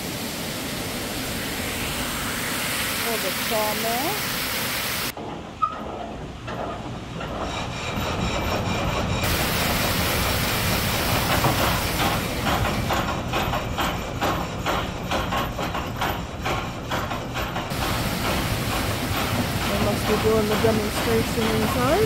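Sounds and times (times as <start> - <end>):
water rushing: 0.0 - 5.2, 9.2 - 12.9, 17.7 - 22.0
mill machinery knocking: 5.1 - 22.0.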